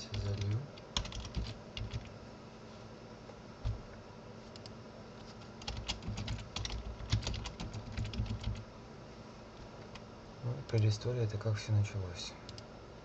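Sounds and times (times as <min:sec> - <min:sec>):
typing on computer keyboard: 0:00.1 - 0:02.1, 0:05.6 - 0:08.6.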